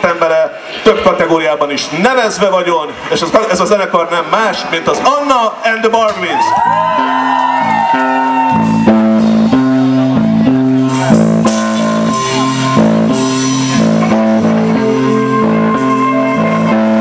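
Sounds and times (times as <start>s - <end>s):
electric guitar and bass riff: 6.5s - 17.0s
live rock band playing: 6.5s - 17.0s.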